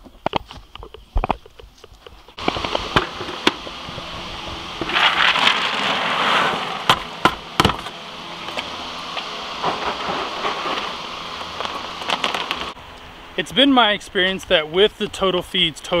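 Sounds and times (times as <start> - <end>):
horse crunching pellets: 4.8 - 6.6, 9.6 - 12.8
feed pellets poured into tub: 4.8 - 6.8.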